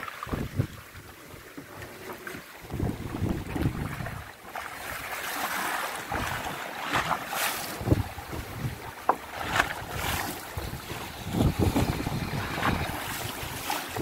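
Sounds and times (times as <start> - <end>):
wind buffeting the microphone: 0.0 - 1.1, 2.6 - 4.4, 7.7 - 14.0
sea washing against boat hull: 0.0 - 14.0
water splashes: 0.0 - 14.0.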